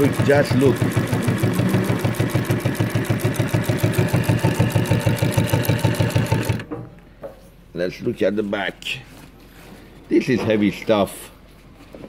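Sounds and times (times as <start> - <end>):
sewing machine stitching: 0.0 - 6.7.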